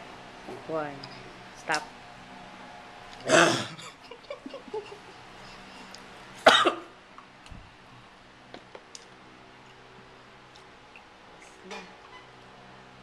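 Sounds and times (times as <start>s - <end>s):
man coughing: 3.2s - 4.0s, 6.4s - 6.9s.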